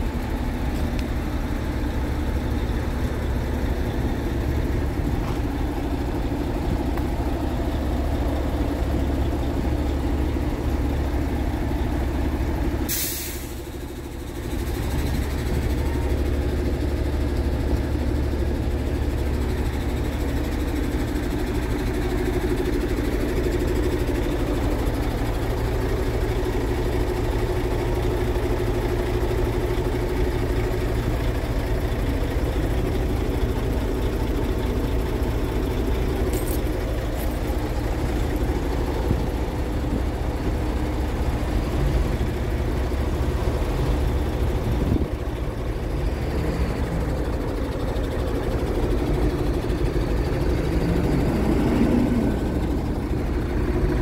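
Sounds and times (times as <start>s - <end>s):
diesel truck engine idling: 0.0s - 54.0s
compressed air hiss: 12.9s - 13.6s.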